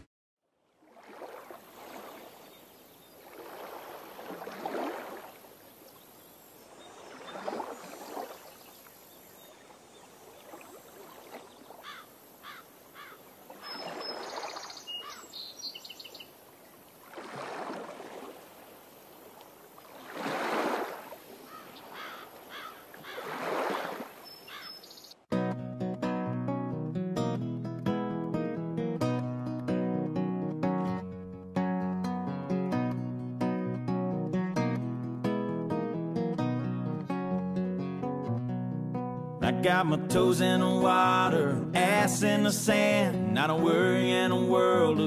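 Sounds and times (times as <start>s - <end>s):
small waves washing in: 0.7s - 15.2s, 16.3s - 24.5s
short bird chirps: 13.6s - 16.3s.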